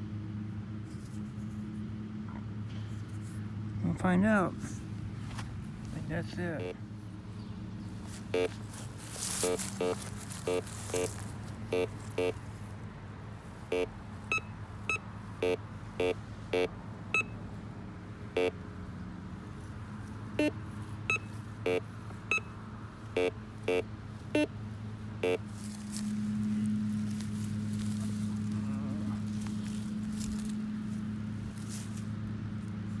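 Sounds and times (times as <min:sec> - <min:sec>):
steady low hum: 0:00.0 - 0:33.0
metal detector beeps: 0:06.6 - 0:06.8, 0:08.3 - 0:08.6, 0:09.3 - 0:12.4, 0:13.7 - 0:17.4, 0:18.4 - 0:18.6, 0:20.4 - 0:22.6, 0:23.2 - 0:24.5, 0:25.2 - 0:25.4.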